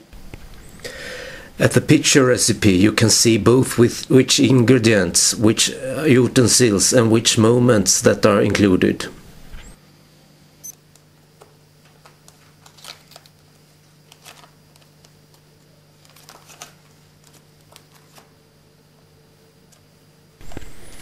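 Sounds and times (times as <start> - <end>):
cards rustling in plastic box: 12.0 - 13.4, 14.0 - 15.4, 16.0 - 18.3.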